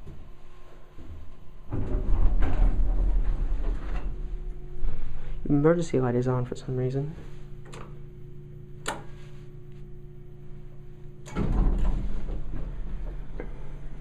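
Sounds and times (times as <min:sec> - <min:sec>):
elevator low hum: 0:00.0 - 0:14.0
elevator doors sliding and rattling: 0:11.3 - 0:13.4.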